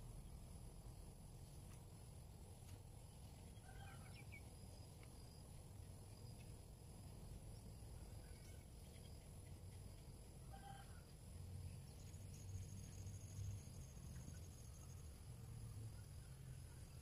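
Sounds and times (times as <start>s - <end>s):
low background hum: 0.0s - 17.0s
faint bird calls: 3.4s - 4.5s.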